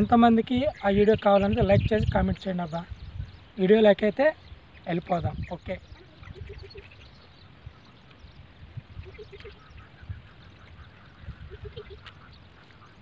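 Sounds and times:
animal calls: 0:05.9 - 0:07.1, 0:08.9 - 0:13.0.

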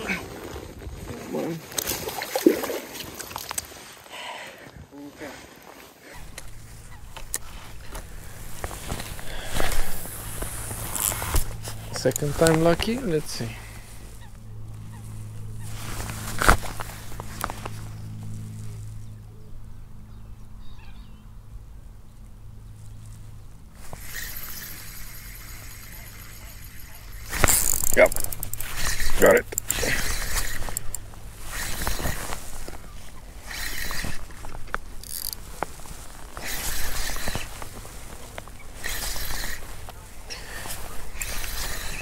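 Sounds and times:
low steady hum: 0:01.0 - 0:42.0
faint bird chirps: 0:19.0 - 0:21.4
fishing reel clicks: 0:23.9 - 0:32.7, 0:33.4 - 0:35.7, 0:36.4 - 0:37.8, 0:38.7 - 0:40.0, 0:40.6 - 0:42.0.

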